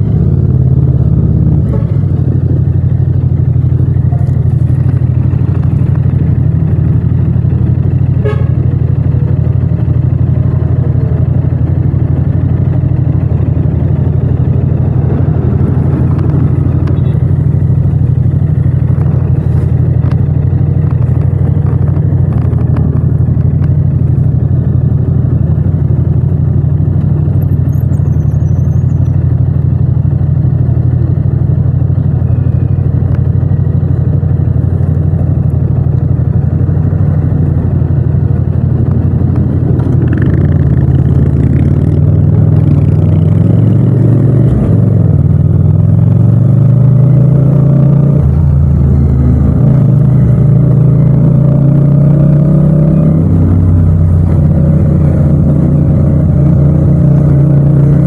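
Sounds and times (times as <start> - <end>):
motorcycle engine idling: 0.0 - 42.9
surrounding motorcycles and traffic: 0.0 - 58.0.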